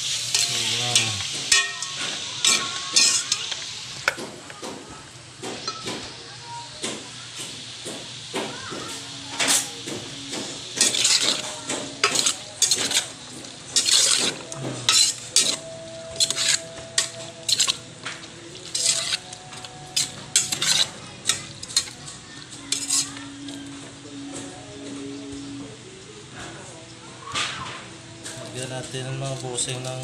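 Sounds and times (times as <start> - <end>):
metal spoon scraping a metal pot: 0.2 - 3.4, 10.8 - 17.8, 18.6 - 22.0, 22.6 - 23.2.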